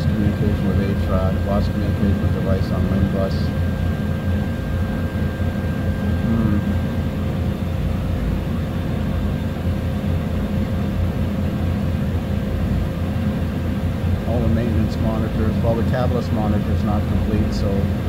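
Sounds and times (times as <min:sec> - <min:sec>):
machinery rumbling: 0:00.0 - 0:08.3
faint high whine: 0:00.0 - 0:18.0.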